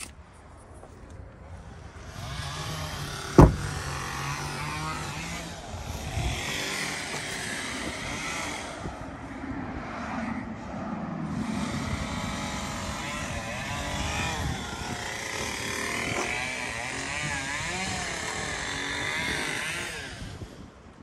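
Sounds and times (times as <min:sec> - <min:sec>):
passing traffic: 0:00.0 - 0:21.0
car door slamming: 0:03.3 - 0:04.1.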